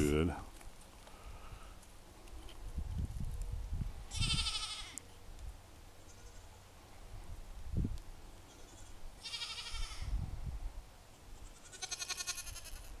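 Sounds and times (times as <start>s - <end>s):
goats bleating: 4.1s - 5.0s, 9.2s - 10.1s, 11.4s - 13.0s.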